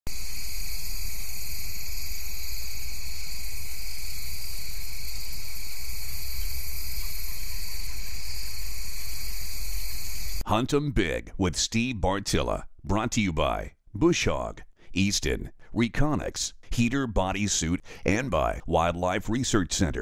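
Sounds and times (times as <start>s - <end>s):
insect chorus trilling: 0.1s - 10.4s.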